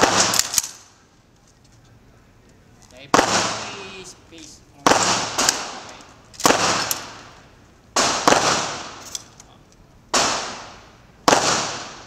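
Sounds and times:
gunshots: 0:00.0 - 0:00.8, 0:03.1 - 0:04.0, 0:04.8 - 0:09.1, 0:10.1 - 0:12.0.

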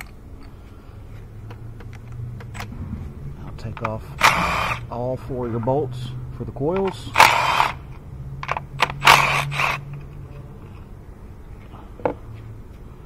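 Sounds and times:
steady low hum: 0:00.0 - 0:13.0
cordless power tool bursts: 0:04.1 - 0:04.9, 0:07.1 - 0:07.9, 0:08.5 - 0:09.8.

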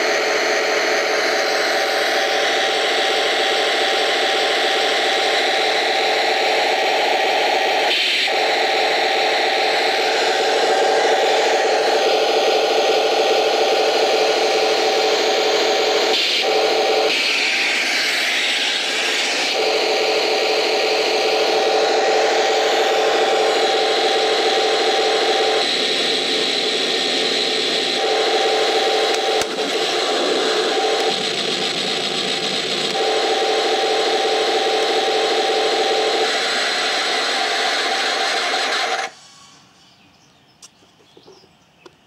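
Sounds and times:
sharp click: 0:40.6 - 0:42.0.

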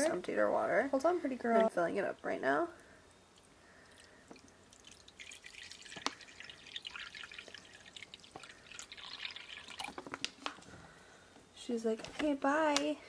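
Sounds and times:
water drips: 0:01.5 - 0:10.6
water pouring into a bowl: 0:03.3 - 0:10.4.

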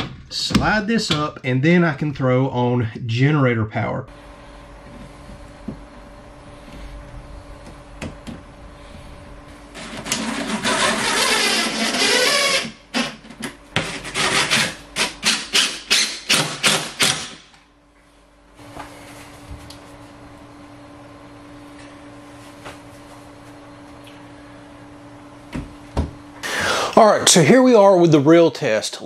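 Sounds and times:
cordless drill driving screws: 0:10.1 - 0:13.1, 0:14.2 - 0:17.4.

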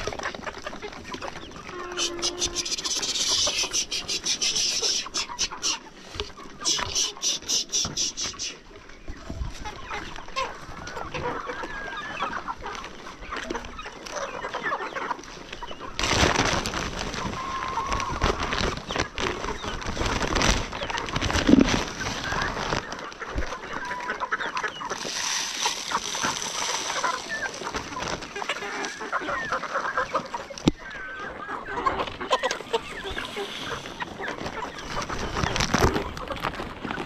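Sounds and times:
hens clucking: 0:00.0 - 0:37.0.

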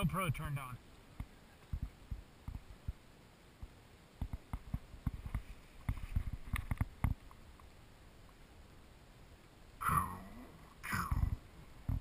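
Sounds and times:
soft thumps and knocks: 0:01.2 - 0:03.0, 0:11.2 - 0:12.0.

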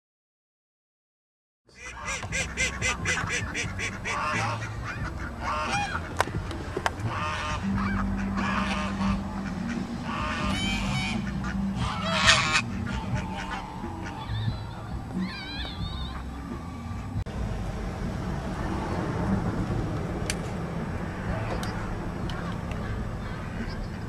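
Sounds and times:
waterfowl flock calling: 0:01.7 - 0:17.0, 0:21.1 - 0:24.0.

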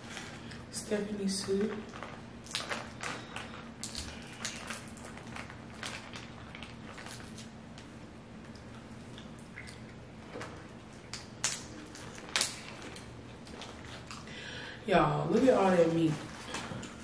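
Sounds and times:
shells cracking and clicking: 0:11.1 - 0:14.2.

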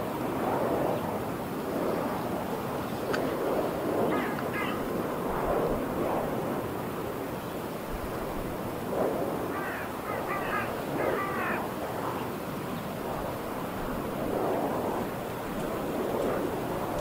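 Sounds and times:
wind turbine rotors whooshing: 0:00.0 - 0:17.0
bird calling: 0:04.1 - 0:04.9, 0:09.5 - 0:11.8.

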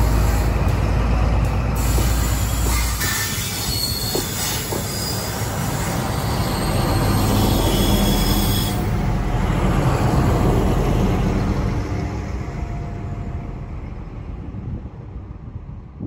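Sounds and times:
diesel locomotives rumbling past: 0:00.0 - 0:16.0
high wheel squeal: 0:01.8 - 0:09.0.

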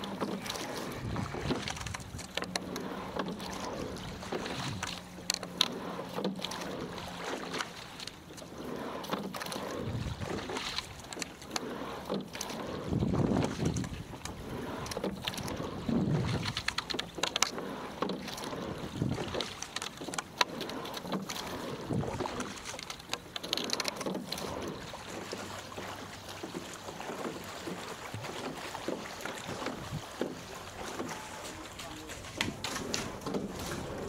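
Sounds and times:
oar blades splashing: 0:00.0 - 0:34.0
water rushing along hull: 0:00.0 - 0:34.0
wind noise on microphone: 0:00.8 - 0:02.2, 0:09.8 - 0:10.5, 0:12.8 - 0:16.7, 0:18.7 - 0:19.4, 0:29.7 - 0:30.1
rowing gear clicking and knocking: 0:10.7 - 0:25.4, 0:32.1 - 0:34.0.

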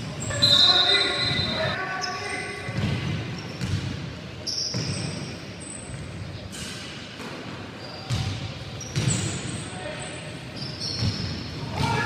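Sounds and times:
sneakers squeaking: 0:00.0 - 0:12.0
basketball bouncing on wooden floor: 0:02.7 - 0:03.9.

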